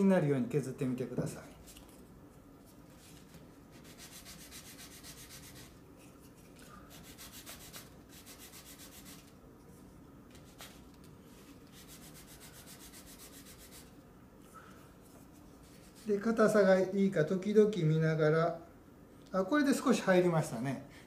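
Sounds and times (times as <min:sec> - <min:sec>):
wood scraping on sandpaper: 0:03.0 - 0:05.7, 0:07.0 - 0:09.3, 0:11.4 - 0:13.9.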